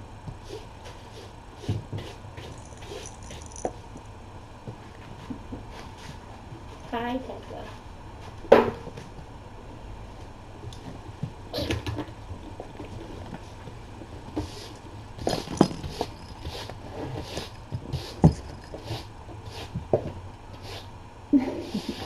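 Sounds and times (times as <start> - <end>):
kittens playing on floor: 0.3 - 8.4, 10.7 - 20.9.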